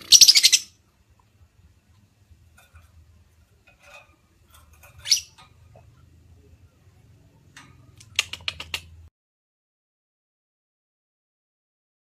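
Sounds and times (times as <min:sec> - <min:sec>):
bird chirping shrilly: 0:00.0 - 0:00.8, 0:05.0 - 0:05.4
low steady hum: 0:00.0 - 0:08.2.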